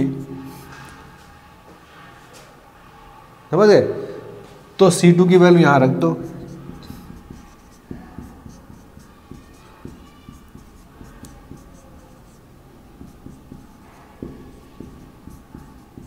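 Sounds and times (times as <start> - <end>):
marker pen writing on whiteboard: 6.0 - 16.0.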